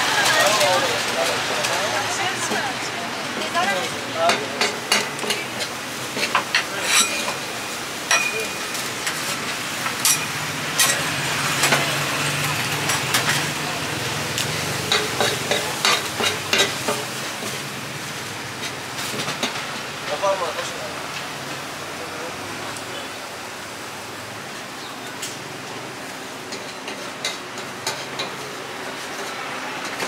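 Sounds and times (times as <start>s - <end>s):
metal utensil scraping a pan: 4.6s - 7.5s.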